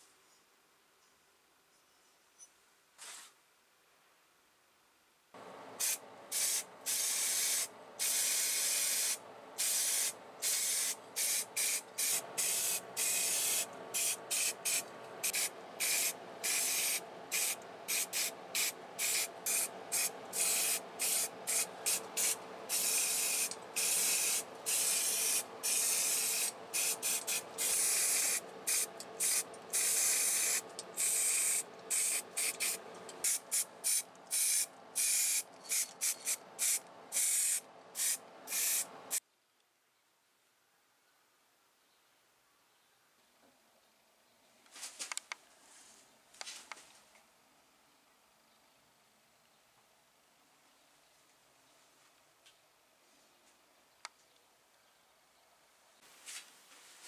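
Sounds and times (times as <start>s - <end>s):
steady background hum: 5.4s - 39.2s
spray paint hissing: 5.8s - 39.2s.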